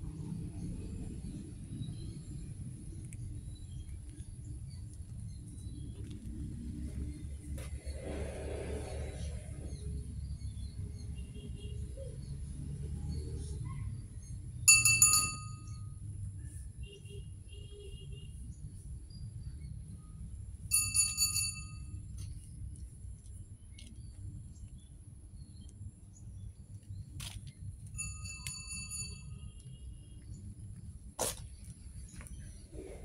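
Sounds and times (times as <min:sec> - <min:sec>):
low outdoor rumble: 0:00.0 - 0:17.3
bell-like ding: 0:14.7 - 0:15.8, 0:20.7 - 0:21.9, 0:28.0 - 0:29.4.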